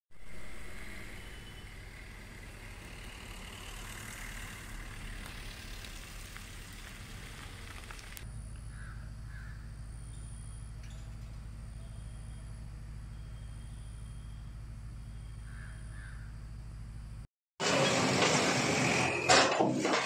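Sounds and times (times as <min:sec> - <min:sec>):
crows cawing: 0:08.7 - 0:09.7, 0:15.4 - 0:16.4.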